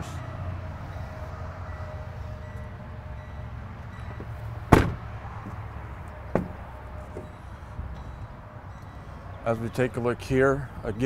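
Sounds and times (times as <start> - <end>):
truck door slamming: 4.2 - 5.6, 6.3 - 7.4.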